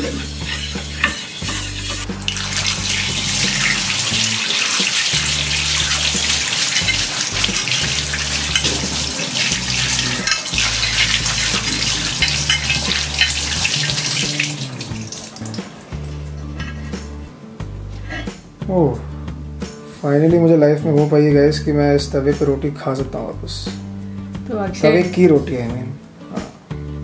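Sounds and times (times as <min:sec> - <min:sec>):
hands rubbing metal griddle: 0:00.0 - 0:14.2, 0:16.5 - 0:17.1
tap water splashing on metal: 0:00.7 - 0:16.7.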